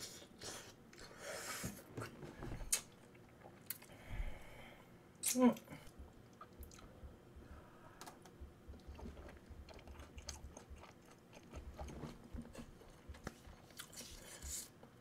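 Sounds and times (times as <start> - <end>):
faint close-up chewing: 6.2 - 6.9, 8.7 - 14.7.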